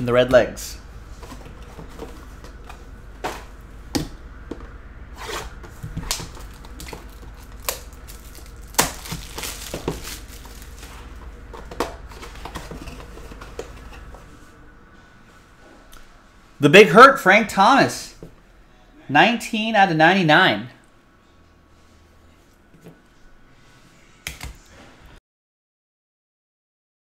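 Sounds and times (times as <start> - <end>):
low hum: 0.0 - 16.6
cardboard and plastic rustling: 1.0 - 14.6.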